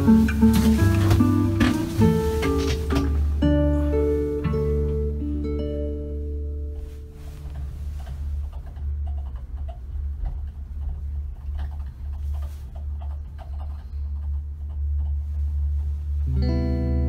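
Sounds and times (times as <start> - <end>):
guitar music: 0.0 - 7.5, 16.2 - 17.0
low rumble: 0.0 - 17.0
light clicks and knocks: 6.7 - 16.0.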